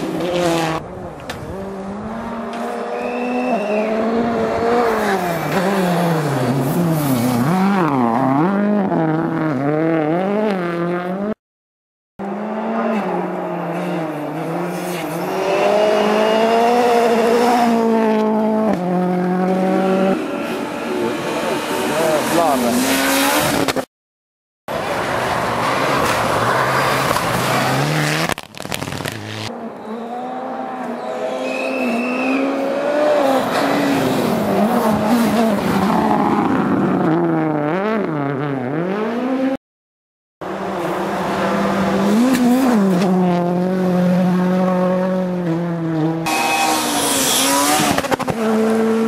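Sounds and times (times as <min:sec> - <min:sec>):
rally car engines revving: 0:00.0 - 0:11.4, 0:12.2 - 0:23.9, 0:24.7 - 0:39.6, 0:40.4 - 0:49.0.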